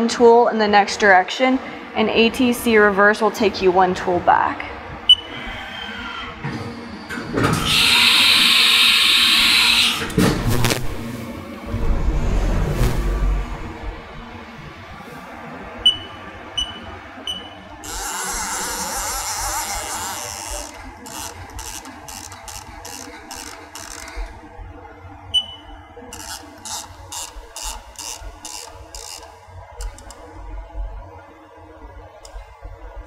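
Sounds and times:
control panel beeping: 0:15.8 - 0:17.7, 0:25.4 - 0:25.8.

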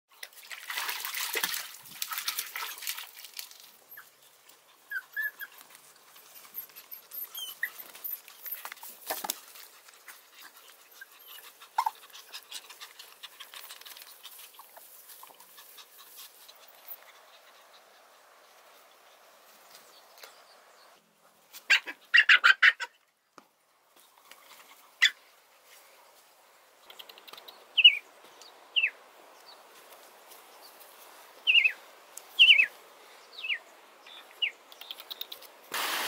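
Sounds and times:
puppies splashing in water: 0:00.2 - 0:04.9
claws scrabbling on dirt and rock: 0:00.3 - 0:04.0, 0:07.8 - 0:10.8, 0:12.7 - 0:16.6
puppy whimpers: 0:04.9 - 0:05.6, 0:06.6 - 0:08.2.

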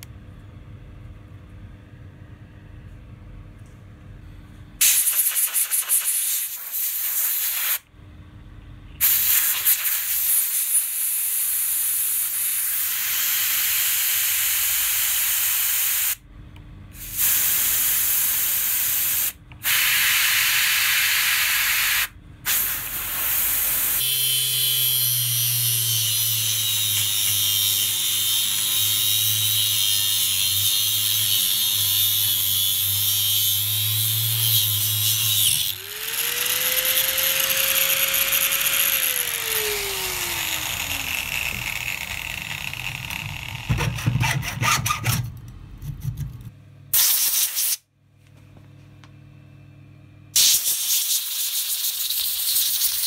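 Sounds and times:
air blow gun hissing: 0:17.0 - 0:24.0
angle grinder cutting metal: 0:23.6 - 0:45.2.

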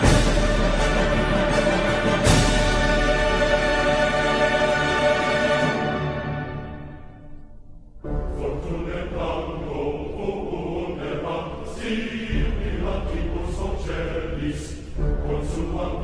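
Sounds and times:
heavy low rumble: 0:08.3 - 0:16.0.

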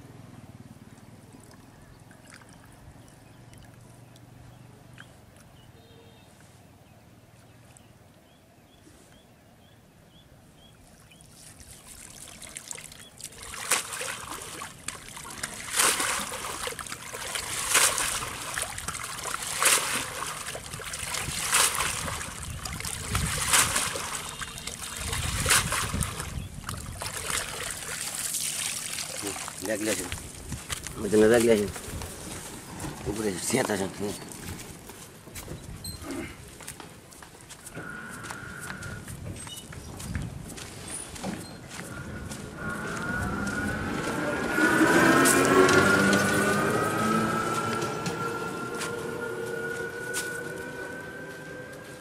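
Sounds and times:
net splashing in water: 0:11.3 - 0:30.4.

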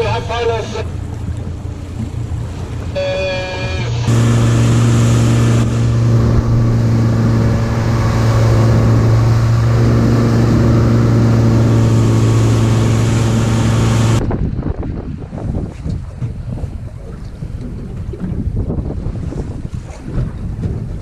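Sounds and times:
outboard motor drone: 0:00.0 - 0:21.0
hiss of boat wake: 0:03.0 - 0:14.2.

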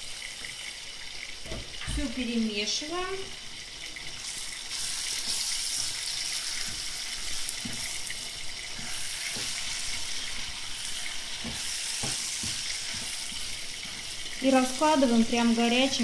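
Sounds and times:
food sizzling in a frying pan: 0:00.0 - 0:16.0
wooden spatula scraping a pan: 0:04.8 - 0:14.8.

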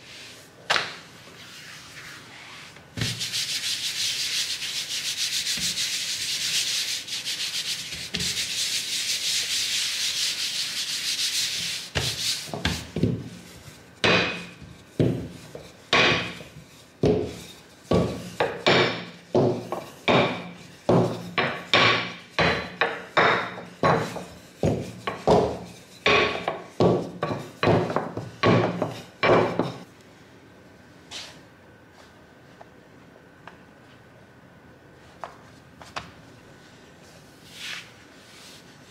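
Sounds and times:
rolling pin on dough: 0:00.0 - 0:29.9
palms rubbing dough: 0:01.3 - 0:29.8.

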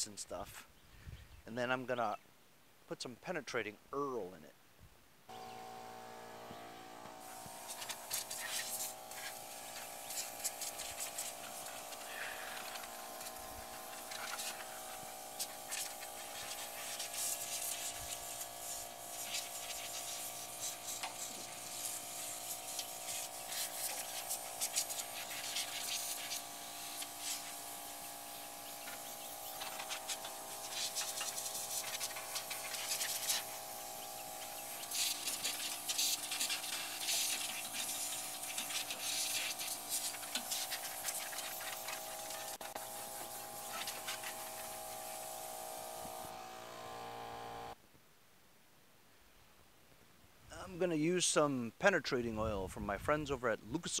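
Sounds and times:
compressed air hissing blasts: 0:06.4 - 0:47.8.

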